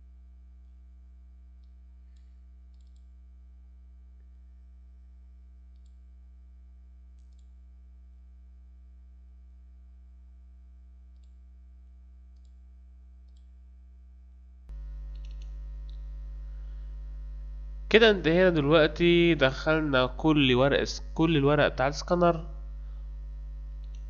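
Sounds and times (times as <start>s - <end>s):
low electrical hum: 0.0s - 24.0s
computer mouse clicks: 1.6s - 3.1s, 5.7s - 6.0s, 7.2s - 7.6s, 13.2s - 13.5s, 15.1s - 16.0s.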